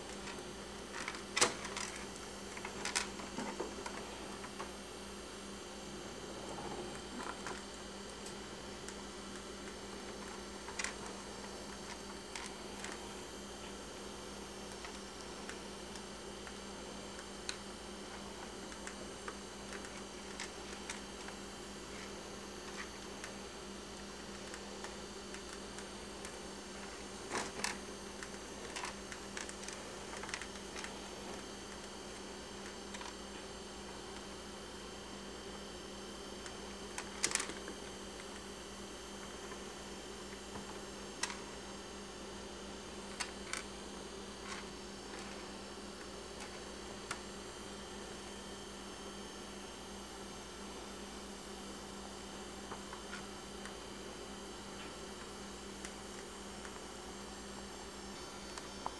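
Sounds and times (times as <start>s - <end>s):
steady electrical hum: 0.0s - 58.9s
faint clicks and scrapes: 6.4s - 13.0s, 24.2s - 32.0s, 44.4s - 45.5s.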